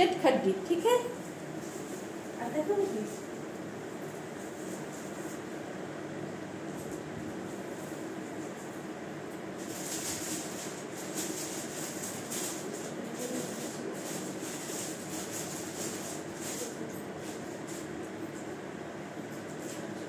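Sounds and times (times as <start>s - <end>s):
ceiling fan humming: 0.0s - 20.0s
fabric rustling and crinkling: 1.6s - 5.6s, 9.6s - 17.9s.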